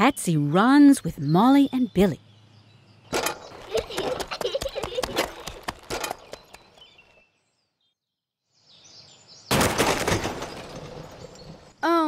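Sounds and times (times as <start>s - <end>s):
cartoon crash clattering smash: 9.5s - 11.2s.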